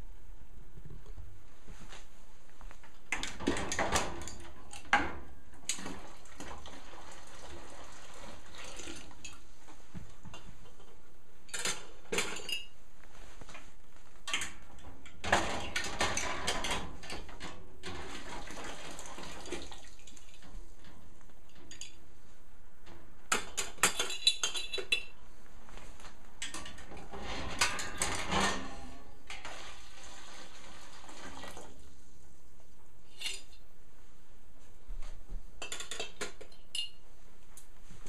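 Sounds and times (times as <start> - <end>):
glass jars clinking against metal: 11.5 - 12.7, 23.6 - 25.2.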